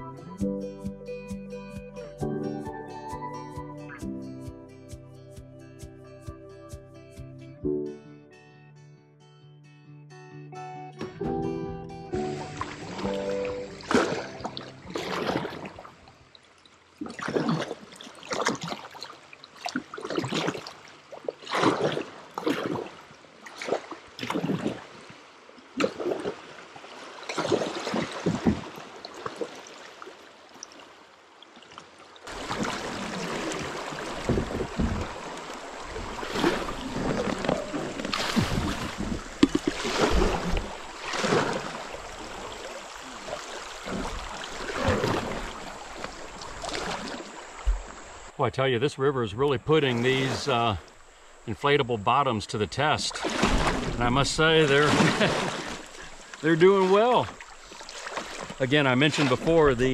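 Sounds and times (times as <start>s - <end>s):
flowing river water: 12.1s - 59.9s
paddle strokes splashing: 12.2s - 48.4s, 49.7s - 59.9s.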